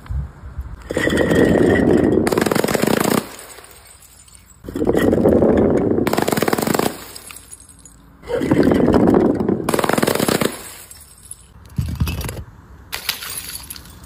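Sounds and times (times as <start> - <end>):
automatic gunfire bursts: 2.2 - 3.6, 6.0 - 7.2, 9.7 - 10.8.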